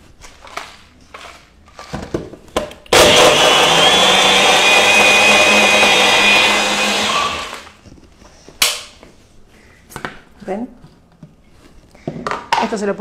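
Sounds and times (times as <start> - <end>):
blender motor whining: 2.9 - 7.8.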